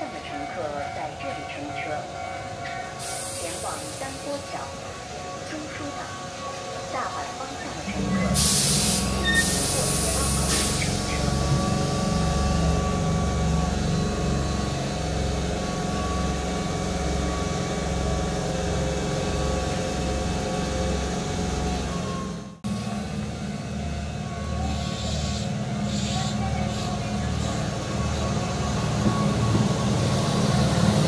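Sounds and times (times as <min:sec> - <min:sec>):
train machinery throbbing: 0:00.0 - 0:31.0
air hiss burst: 0:08.4 - 0:11.0.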